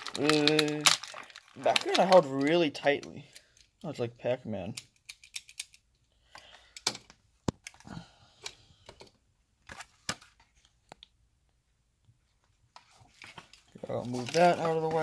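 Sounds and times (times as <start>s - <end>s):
plastic wrapper crinkling: 0.0s - 3.6s, 13.0s - 15.0s.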